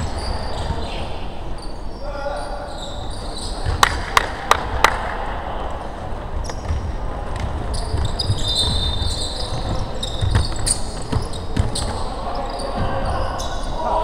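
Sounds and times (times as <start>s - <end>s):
basketball shoes squeaking: 0.0s - 3.9s, 6.4s - 13.8s
low rumble of players running: 6.2s - 13.6s
basketball bouncing: 6.5s - 11.9s.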